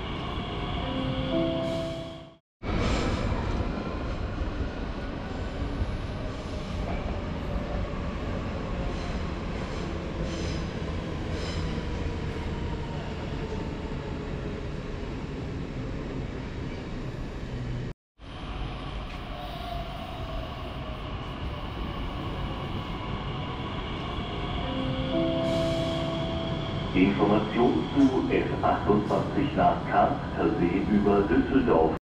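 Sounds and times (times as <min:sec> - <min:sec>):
train wheels rumbling on rails: 0:18.4 - 0:31.9.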